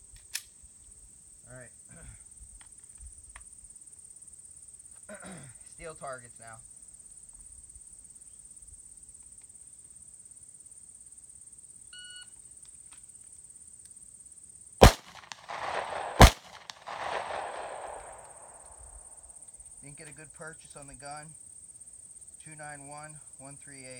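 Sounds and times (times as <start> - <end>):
pistol shots: 14.8 - 19.0.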